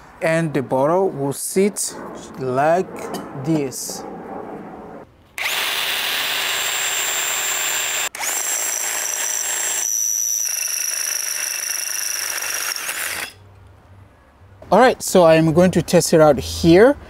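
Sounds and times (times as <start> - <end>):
power drill whining: 5.4 - 13.4.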